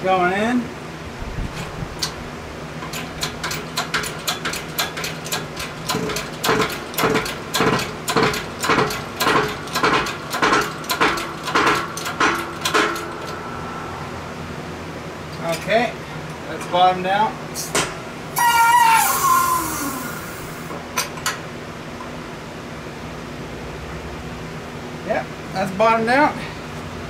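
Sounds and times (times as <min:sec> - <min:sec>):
steady low hum: 0:00.0 - 0:18.4.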